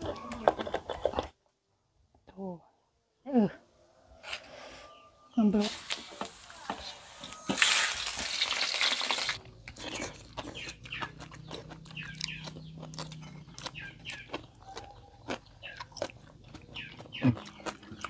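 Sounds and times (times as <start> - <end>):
chickens clucking: 0.0 - 1.4, 10.0 - 18.0
crunching and chewing food: 0.0 - 1.6, 5.7 - 18.0
hot oil sizzling in a wok: 7.6 - 9.4.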